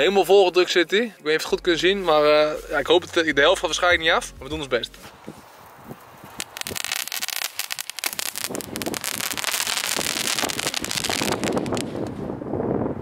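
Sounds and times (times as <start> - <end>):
firework crackles and small pops: 5.6 - 12.3.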